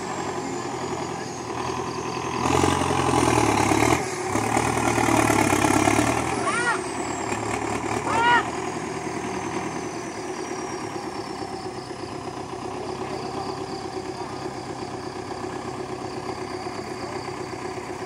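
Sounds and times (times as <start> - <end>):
tractor diesel engine idling: 0.0 - 18.0
faint high whine: 9.8 - 18.0.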